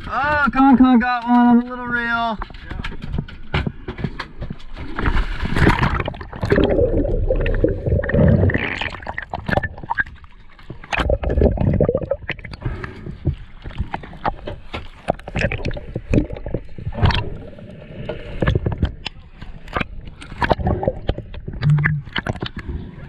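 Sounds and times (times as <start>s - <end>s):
underwater water noise: 0.0s - 23.0s
sharp underwater clicks: 13.6s - 22.7s.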